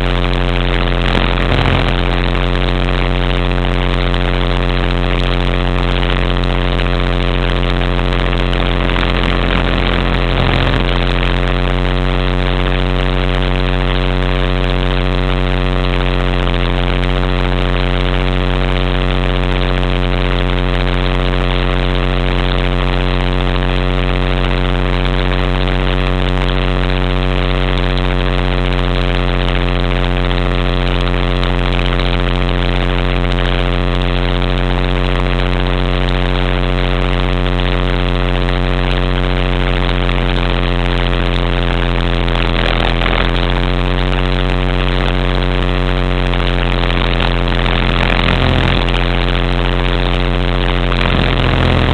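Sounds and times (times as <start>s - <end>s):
rc helicopter motor and rotor hum: 0.8s - 2.5s, 7.8s - 11.2s, 42.4s - 43.4s, 46.9s - 49.4s, 50.9s - 51.9s.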